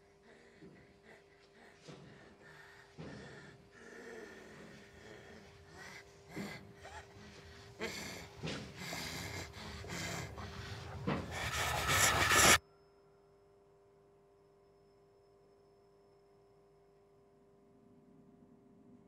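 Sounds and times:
man panting and gasping: 0:00.0 - 0:12.6.

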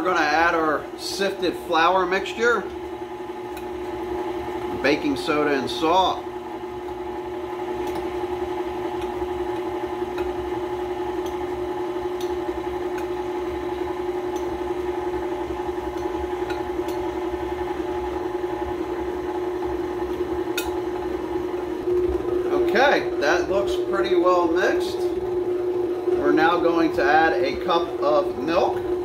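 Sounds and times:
stand mixer motor running: 0:00.0 - 0:29.0.

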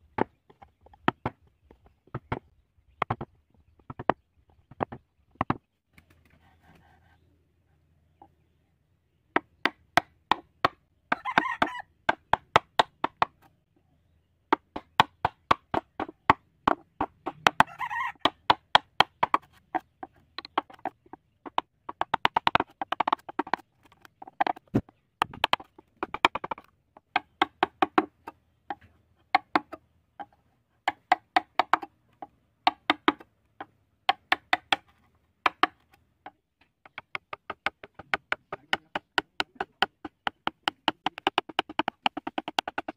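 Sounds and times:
chisel tapping wood: 0:03.0 - 0:03.3, 0:09.4 - 0:13.4, 0:14.5 - 0:42.9.

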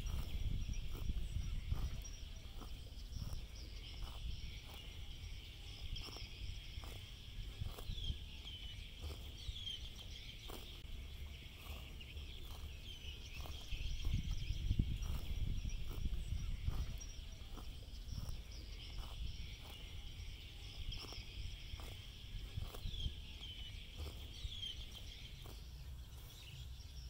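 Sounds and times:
bird chirping: 0:00.0 - 0:27.0
cow cropping grass: 0:00.0 - 0:27.0
insects chorus: 0:00.0 - 0:27.0
low wind rumble: 0:00.0 - 0:27.0.

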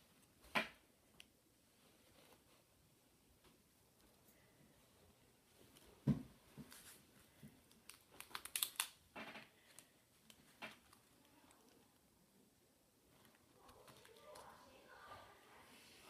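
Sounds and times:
paper clicks and rustles: 0:07.6 - 0:11.9, 0:13.1 - 0:14.6.

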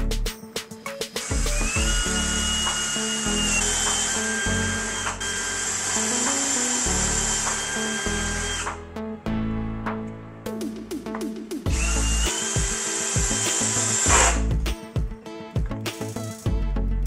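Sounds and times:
cordless drill boring into wood: 0:01.2 - 0:08.8, 0:11.7 - 0:14.5.

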